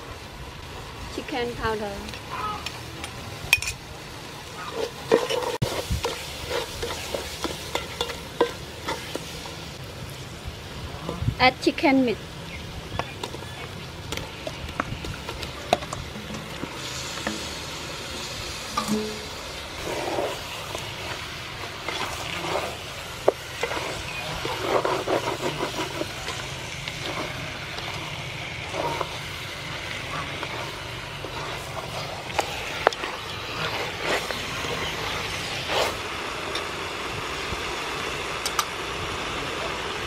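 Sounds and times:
chicken sizzling in pot: 0.0s - 40.0s
wooden spoon scraping and knocking: 4.8s - 9.3s, 18.7s - 36.0s.

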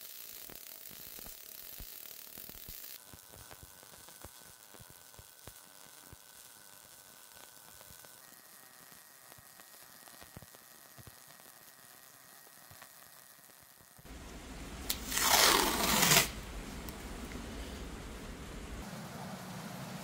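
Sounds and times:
welding arc crackle: 0.0s - 18.8s
tape pulled off roll: 14.8s - 17.0s.

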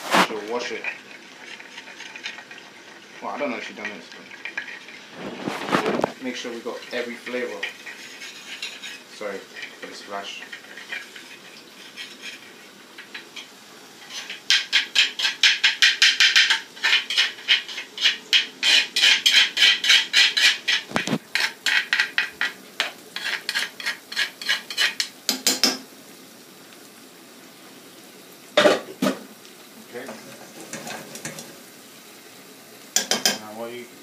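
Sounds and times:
metal spoon scraping a bowl: 7.2s - 12.5s, 14.1s - 25.7s.

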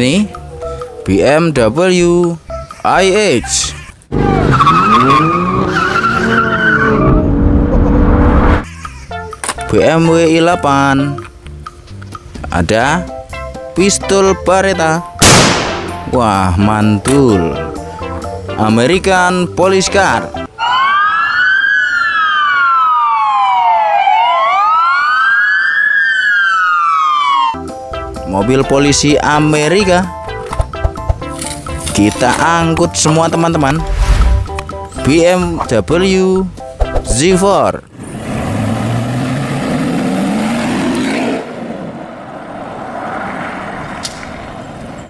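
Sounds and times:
police siren wailing: 0.0s - 1.6s, 4.1s - 8.5s, 20.5s - 27.8s.

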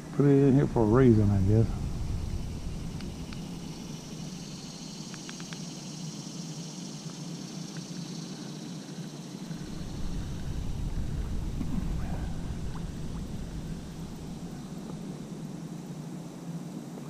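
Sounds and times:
low rumble: 0.0s - 5.4s, 9.5s - 15.6s
insects droning: 0.0s - 17.0s
faint clicks: 5.0s - 5.7s.

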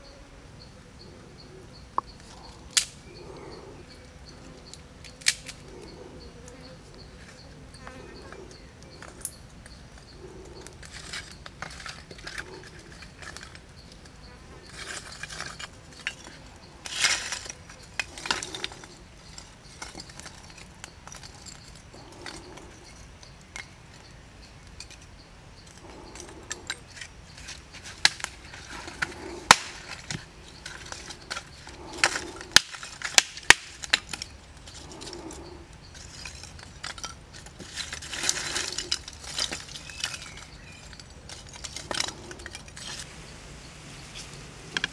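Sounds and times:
insects buzzing: 0.0s - 44.9s
charcoal lumps clinking: 10.2s - 23.7s, 25.7s - 43.1s.

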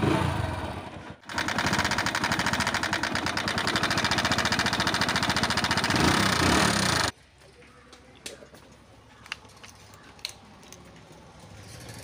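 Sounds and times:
motorcycle engine idling: 0.2s - 7.1s.

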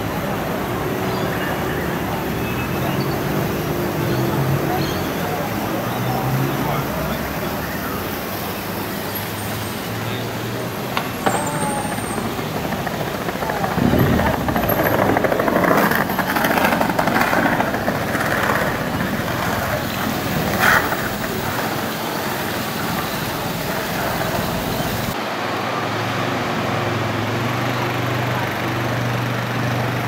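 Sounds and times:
fountain water jets splashing: 0.0s - 26.1s
pedestrian ambience: 0.0s - 30.0s
street ambience with low hum: 0.0s - 30.0s.

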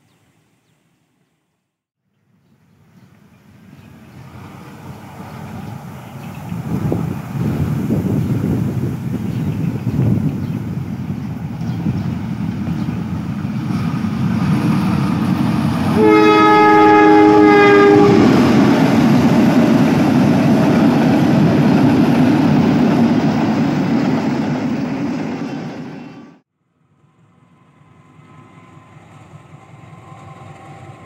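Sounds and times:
diesel locomotive engine rumble: 2.8s - 31.0s
train wheels on rails: 3.1s - 26.4s, 27.1s - 31.0s
train horn two-note chord: 16.0s - 18.4s.

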